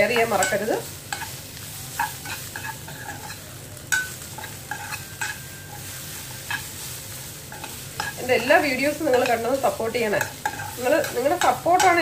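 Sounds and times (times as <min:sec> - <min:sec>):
spoon scraping frying pan: 0:00.0 - 0:12.0
vegetable sizzling in oil: 0:00.0 - 0:12.0.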